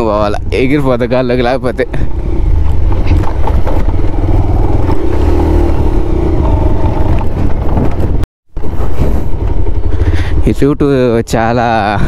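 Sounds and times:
motorcycle engine running: 0.0s - 12.0s
wind rumble on microphone: 1.9s - 10.5s.

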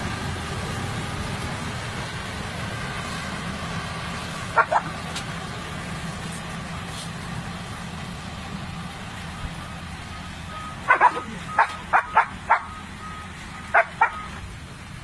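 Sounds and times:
dog barking: 4.6s - 4.9s, 10.9s - 12.7s, 13.7s - 14.2s.

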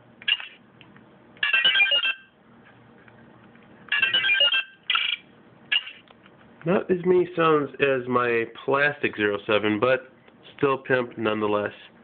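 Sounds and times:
toy electronic beeps and tones: 1.4s - 2.3s, 3.9s - 5.2s.

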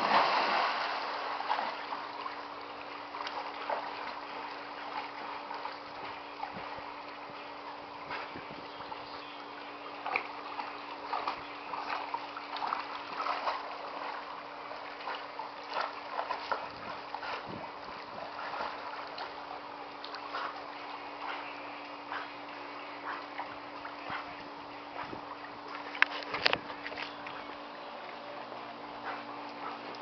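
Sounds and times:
dog splashing in water: 0.0s - 1.8s
steady low hum: 0.0s - 30.0s.

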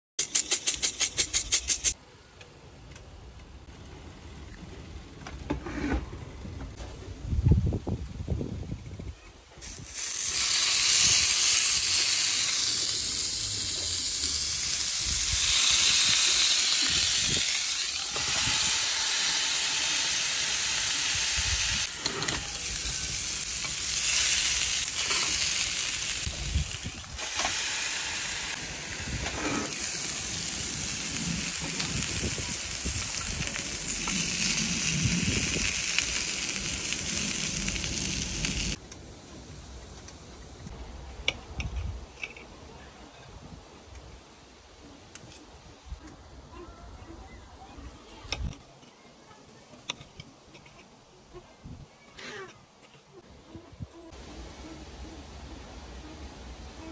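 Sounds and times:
meat sizzling on a grill: 9.6s - 38.8s.

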